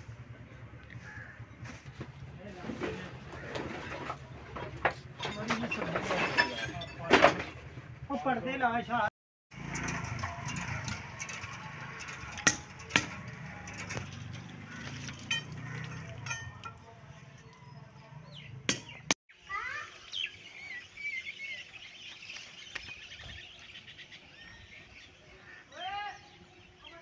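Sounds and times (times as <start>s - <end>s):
water splashing from hand pump: 9.8s - 16.9s
birds chirping: 12.8s - 27.0s.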